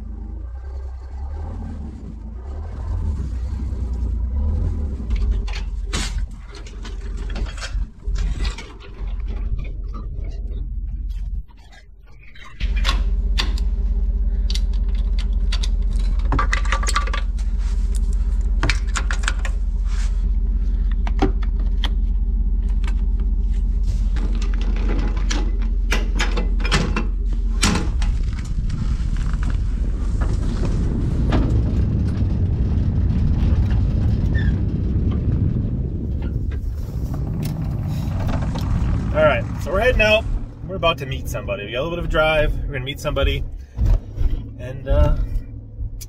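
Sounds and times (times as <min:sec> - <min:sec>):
vehicle driving on road: 0:00.0 - 0:46.0
vehicle engine idling: 0:00.0 - 0:46.0
metallic clanks and clicks: 0:05.0 - 0:13.8, 0:14.4 - 0:19.6, 0:24.2 - 0:28.2.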